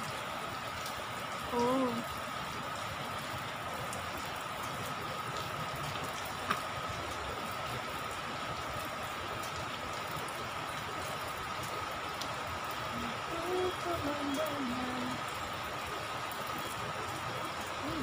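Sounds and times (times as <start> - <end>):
rain on a rooftop: 0.0 - 18.0
faint steady high tone: 13.0 - 15.2.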